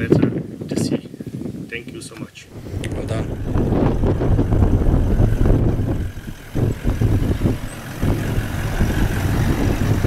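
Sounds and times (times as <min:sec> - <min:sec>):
truck engine rumbling: 0:02.5 - 0:10.0.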